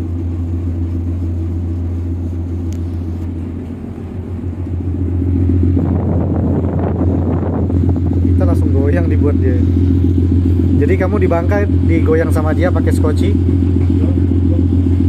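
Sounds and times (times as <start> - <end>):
diesel engine droning: 0.0 - 15.0.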